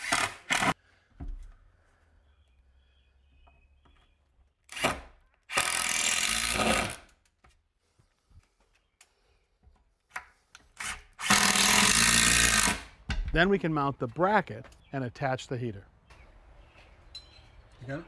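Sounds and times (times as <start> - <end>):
cordless drill driving screws: 10.7 - 12.9.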